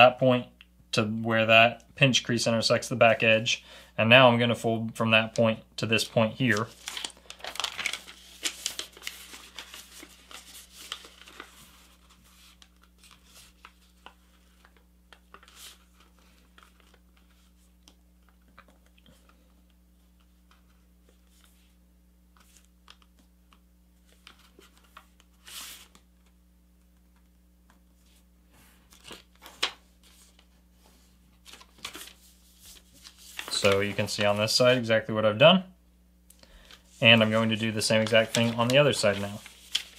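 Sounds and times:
paper rustling and crinkling: 0:06.0 - 0:19.4, 0:24.0 - 0:26.3, 0:28.8 - 0:34.8, 0:36.6 - 0:39.9
paper fold scraping: 0:06.4 - 0:17.8, 0:24.0 - 0:26.0, 0:28.8 - 0:34.6, 0:36.6 - 0:39.9.

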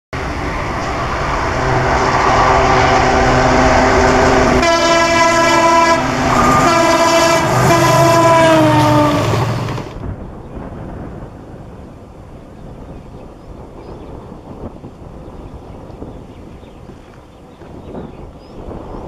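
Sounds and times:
diesel locomotive passing: 0:00.2 - 0:19.0
train wheels on rails: 0:00.2 - 0:19.0
train horn blasts: 0:01.4 - 0:09.8.

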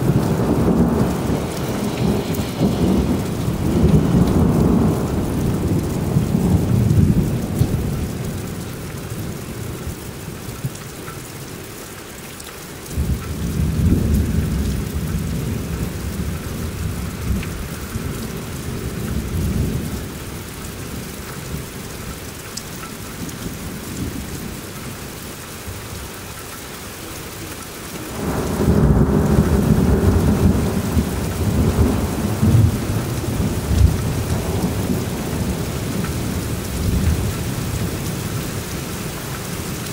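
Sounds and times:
thunder rumbling: 0:00.0 - 0:09.7, 0:28.1 - 0:39.9
heavy rain: 0:00.0 - 0:39.9.

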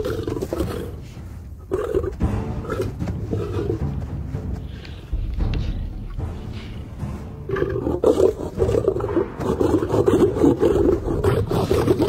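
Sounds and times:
lions growling and snarling: 0:00.0 - 0:03.9, 0:07.4 - 0:12.0.

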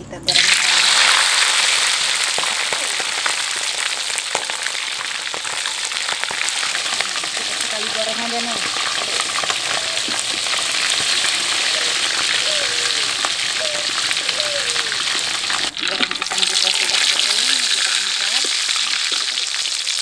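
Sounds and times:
chicken deep-frying in oil: 0:00.3 - 0:20.0.

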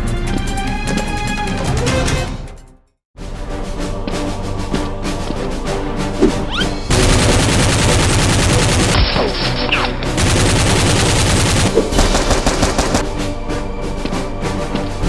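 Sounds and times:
dramatic background music: 0:00.0 - 0:15.0
automatic gunfire: 0:06.9 - 0:09.4, 0:10.2 - 0:13.1.

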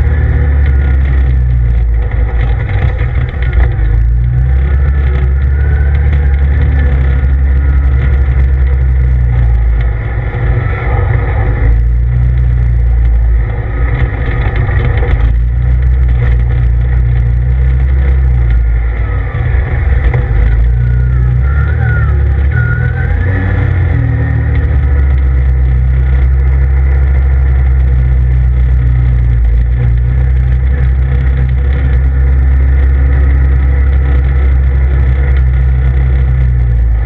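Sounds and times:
engine running under load: 0:00.0 - 0:37.0.

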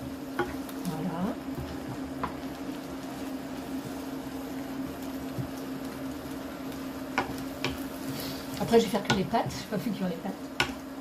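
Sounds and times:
induction hob humming: 0:00.0 - 0:11.0
sauce simmering: 0:00.0 - 0:11.0.

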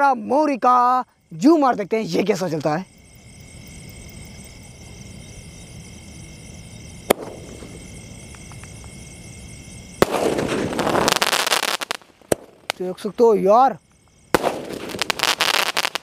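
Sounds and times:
firework crack: 0:07.0 - 0:09.0, 0:09.8 - 0:13.2, 0:14.0 - 0:16.0
fireworks firing rush: 0:07.1 - 0:08.1, 0:09.9 - 0:13.2, 0:14.2 - 0:16.0.

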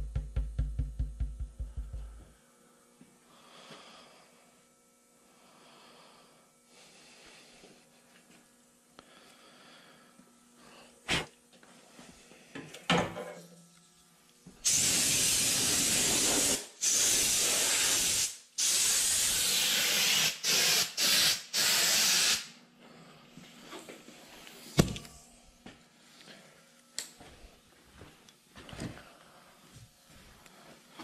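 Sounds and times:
air blow gun hissing: 0:14.6 - 0:22.6.

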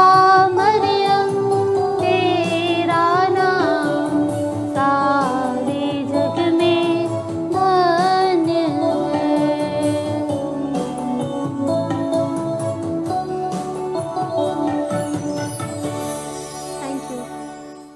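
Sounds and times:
woman singing a hymn: 0:00.0 - 0:10.5
instrumental accompaniment: 0:00.0 - 0:17.9.

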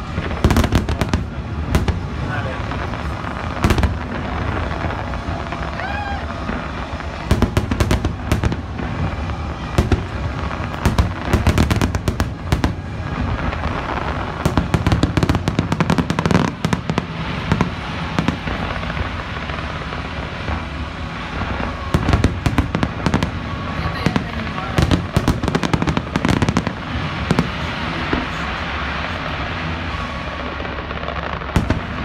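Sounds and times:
continuous rumble: 0:00.0 - 0:32.0
crackling firework shells: 0:00.0 - 0:32.0
fireworks booming: 0:00.0 - 0:32.0.

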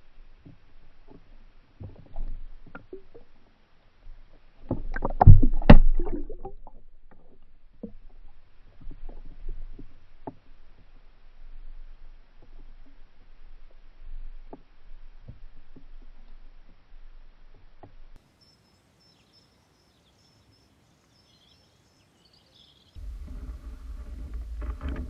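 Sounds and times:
underwater knocks and rumbles: 0:00.0 - 0:18.2, 0:23.0 - 0:25.0
thuds and clatter: 0:23.0 - 0:25.0.

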